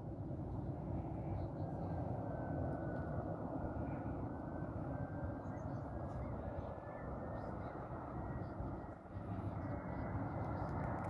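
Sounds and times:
jet engines rumbling: 0.0 - 11.0.

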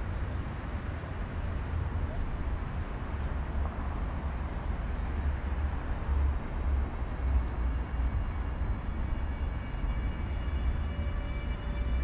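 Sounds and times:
train low rumble: 0.0 - 12.0.

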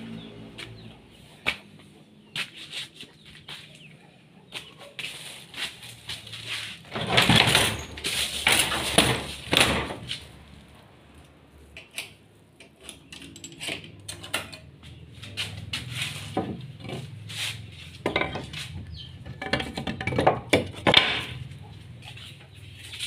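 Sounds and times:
household objects clattering: 6.8 - 10.2, 18.0 - 21.5.

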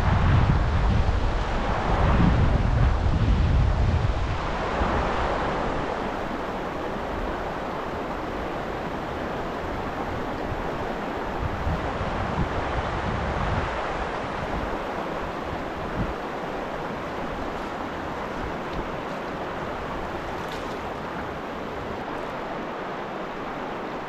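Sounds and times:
fast-flowing river current: 0.0 - 24.0.

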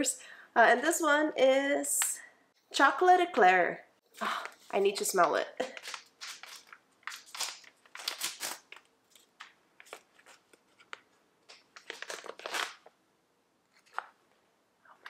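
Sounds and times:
coffee bag crinkling: 4.5 - 11.0, 11.7 - 12.9.

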